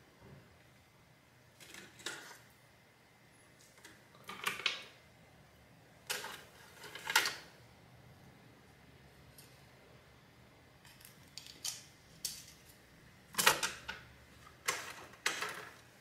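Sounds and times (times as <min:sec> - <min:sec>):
rummaging through small parts: 0:06.1 - 0:07.4, 0:14.6 - 0:15.9.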